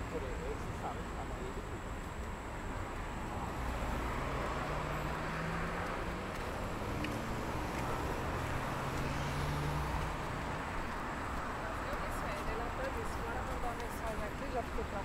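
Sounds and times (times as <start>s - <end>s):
street traffic noise: 0.0s - 15.0s
passing engine hum: 3.2s - 14.2s.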